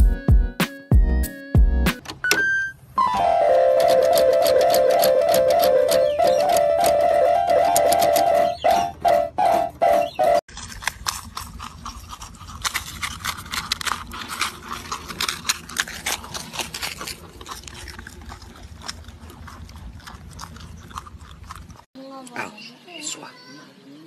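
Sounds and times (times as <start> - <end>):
marmots crunching cracker: 3.6 - 21.9.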